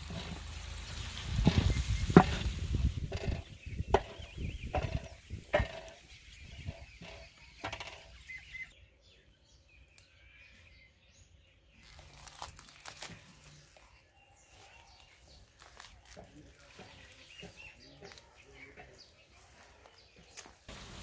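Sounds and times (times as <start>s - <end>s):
onions frying in oil: 0.0s - 7.2s, 20.7s - 21.0s
wooden spatula scraping a pot: 0.0s - 8.7s
faint bird chirps: 3.1s - 20.7s.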